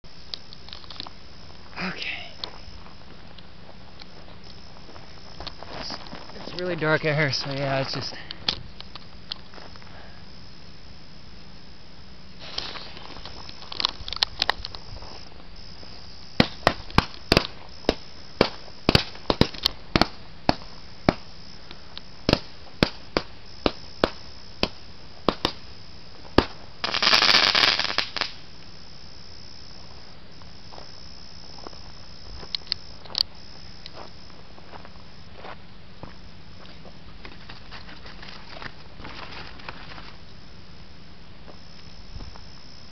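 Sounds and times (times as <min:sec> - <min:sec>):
firework hiss: 0:12.3 - 0:30.1
fireworks fizzing and crackling: 0:12.4 - 0:28.7
fireworks bangs: 0:16.4 - 0:21.3, 0:22.2 - 0:25.6, 0:26.4 - 0:28.4.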